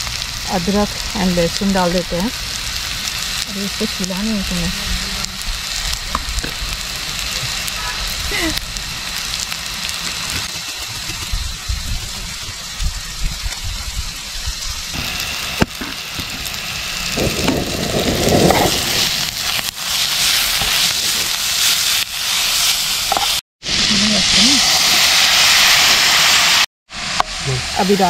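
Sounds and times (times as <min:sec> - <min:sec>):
low rumble: 0:00.0 - 0:19.7
sizzling in hot oil: 0:00.0 - 0:28.0.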